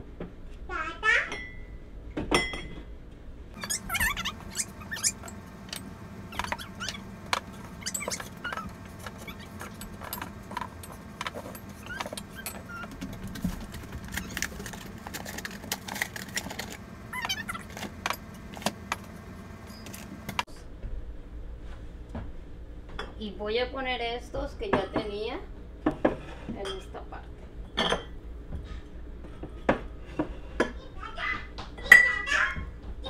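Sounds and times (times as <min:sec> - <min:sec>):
ceramic dishes clinking on shelf: 0:02.3 - 0:02.8.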